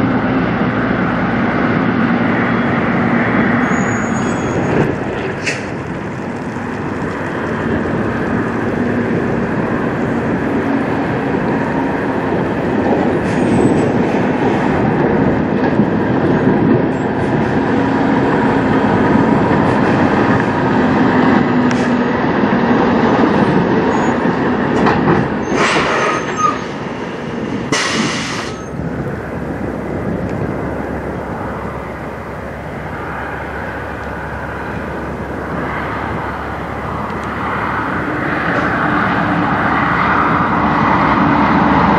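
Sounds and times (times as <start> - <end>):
truck diesel engine rumbling: 0.0 - 41.9
air brake hisses: 27.7 - 28.7.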